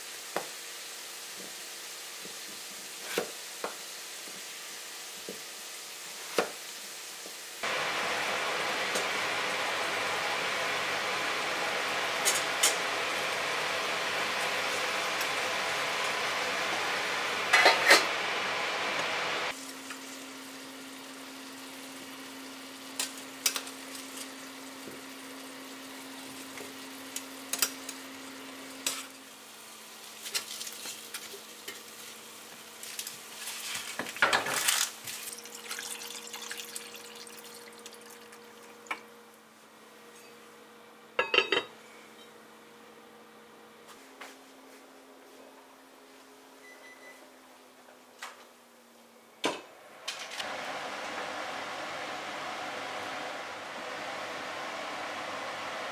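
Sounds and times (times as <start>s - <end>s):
meat and potato sizzling in a pot: 0.0s - 39.0s.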